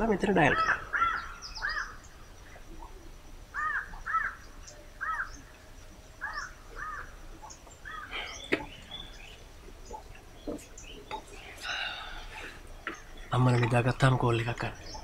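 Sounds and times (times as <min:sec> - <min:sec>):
crows cawing: 0:00.4 - 0:02.1, 0:03.5 - 0:05.4, 0:06.2 - 0:07.2, 0:07.8 - 0:08.6.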